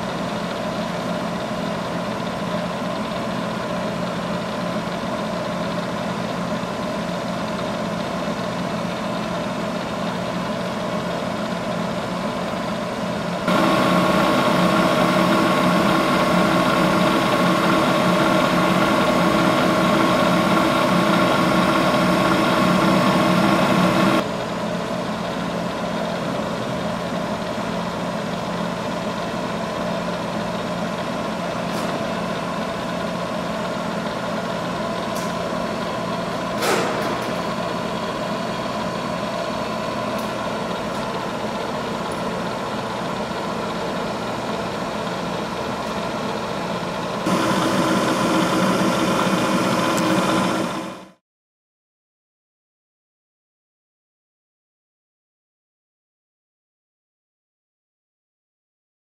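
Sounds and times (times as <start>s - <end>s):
milling machine motor hum: 12.6s - 24.4s, 27.4s - 51.2s
whining hum: 13.4s - 24.8s, 47.0s - 51.2s
machine clunk: 36.4s - 37.8s.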